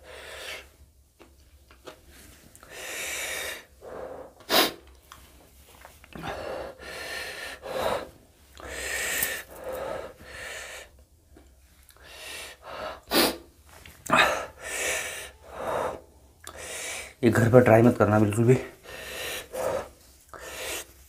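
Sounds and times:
man breathing hard through mouth: 0.0 - 0.8, 2.6 - 4.9, 6.1 - 11.0, 12.0 - 17.2, 18.7 - 21.0.

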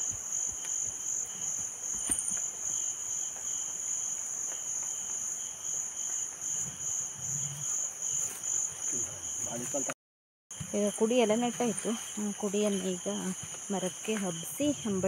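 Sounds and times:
high-pitched insect trill: 0.0 - 9.9.

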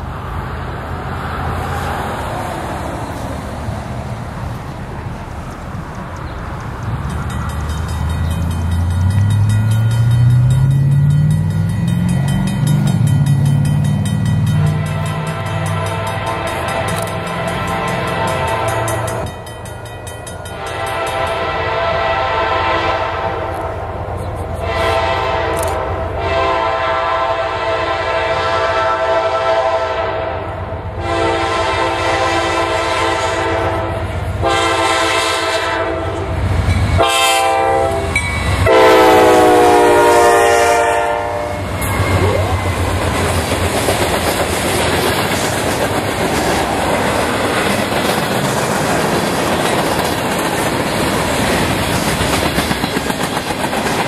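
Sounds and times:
low drone rising in pitch: 6.9 - 15.9, 41.3 - 43.8
train air horn blasts: 14.4 - 19.3, 20.5 - 42.9.

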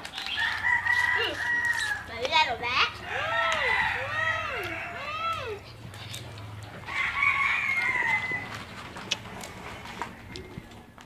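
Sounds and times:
rooster crowing: 0.4 - 2.1, 3.0 - 5.4, 6.8 - 8.7.

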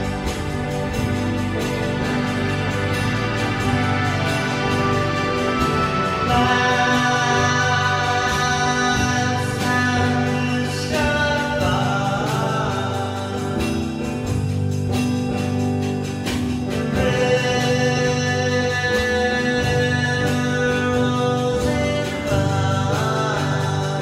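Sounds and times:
person singing: 0.0 - 14.4, 16.7 - 24.0
sustained instrumental chords: 0.0 - 18.8.

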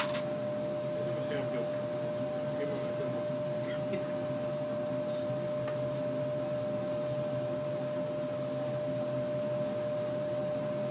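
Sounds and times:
magnetic stirring plate humming: 0.0 - 10.9.

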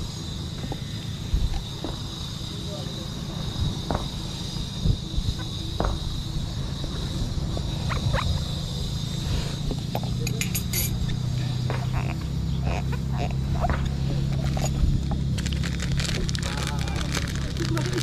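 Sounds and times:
high-pitched whine: 0.0 - 18.0
wind and tyres rumbling: 0.0 - 18.0.

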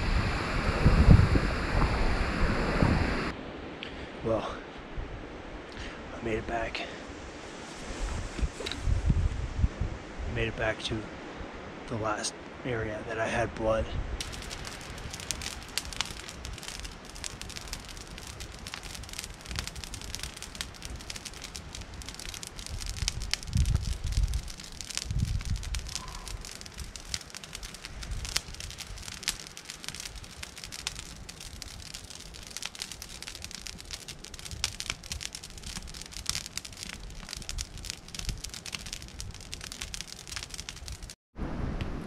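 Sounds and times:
low rumbles: 14.0 - 42.0
wood fire crackling: 14.2 - 41.2.

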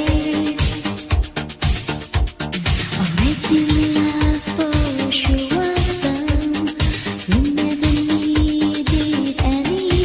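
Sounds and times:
drum beat: 1.1 - 6.4.

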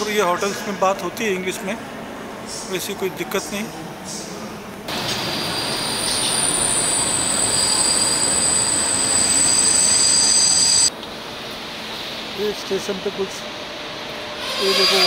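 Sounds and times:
train wheels squealing: 5.0 - 10.9, 14.4 - 15.0.

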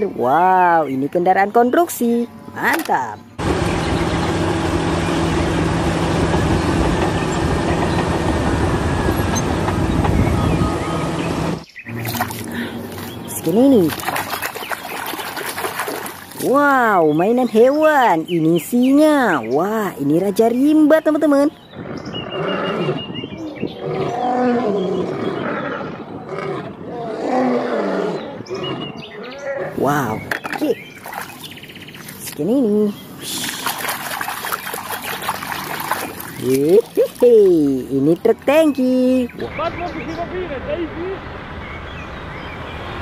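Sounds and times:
bulldozer diesel engine under load: 3.4 - 11.6
lions roaring: 21.8 - 29.8.

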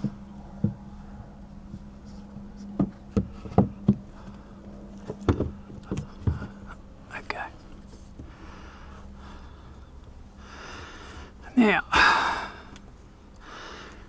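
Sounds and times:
steady low hum: 0.0 - 14.0
light knocks and taps: 2.6 - 4.4.

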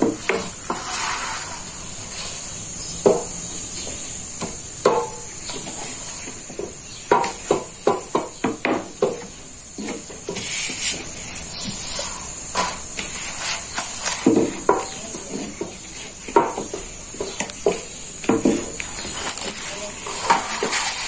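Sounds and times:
gas burner hissing: 0.0 - 7.9.

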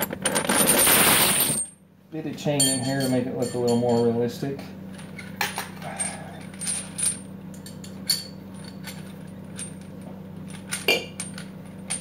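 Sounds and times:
steady low hum: 0.0 - 12.0
chain links clinking: 2.6 - 4.1, 4.9 - 12.0.

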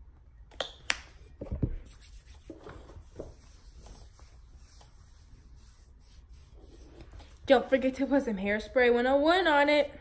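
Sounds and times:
hands rubbing lotion: 0.9 - 7.4.

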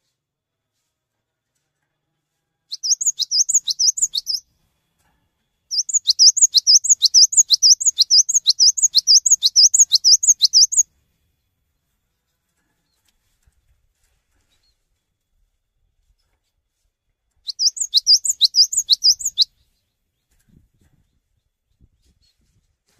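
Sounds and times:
bird singing high sweeping notes: 2.8 - 4.4, 5.7 - 10.8, 17.5 - 19.5.

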